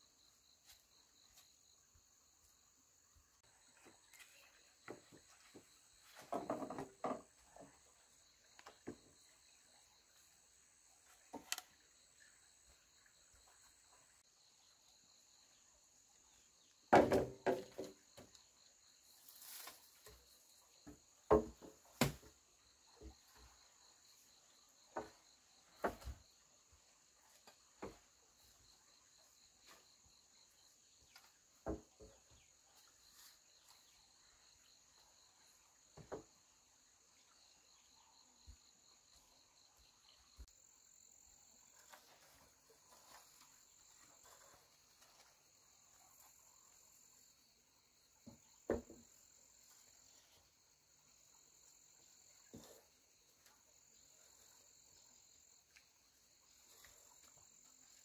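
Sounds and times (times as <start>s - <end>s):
insects chirring: 0.0s - 58.0s
knocks and clatters: 4.9s - 7.8s.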